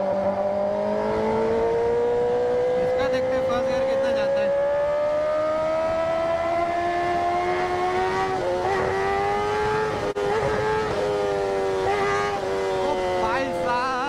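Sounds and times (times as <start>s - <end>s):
motorcycle engine at high revs: 0.0s - 14.0s.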